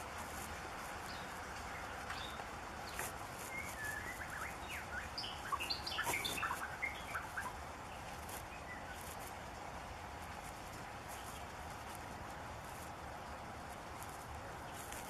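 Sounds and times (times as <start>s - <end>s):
steady background hiss: 0.0s - 15.0s
bird singing whistled notes: 1.0s - 9.1s.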